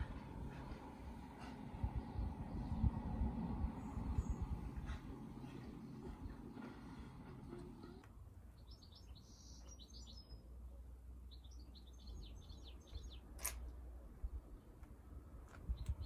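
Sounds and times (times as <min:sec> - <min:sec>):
faint low rumble: 0:00.0 - 0:08.4.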